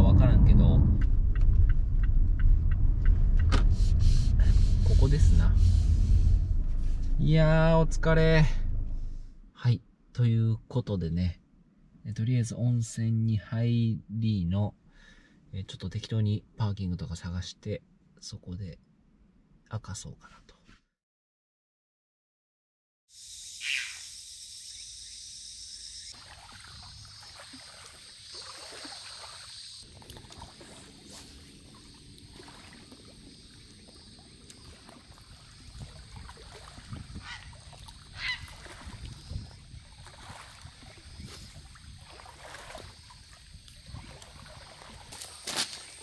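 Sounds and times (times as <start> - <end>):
steady low rumble: 0.0 - 10.7
birds calling: 23.6 - 25.2, 29.0 - 42.2.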